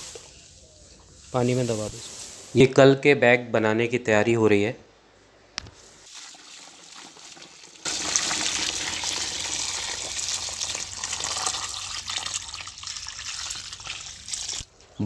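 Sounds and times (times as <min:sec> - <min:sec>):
water pouring onto wet straw: 0:06.0 - 0:14.7.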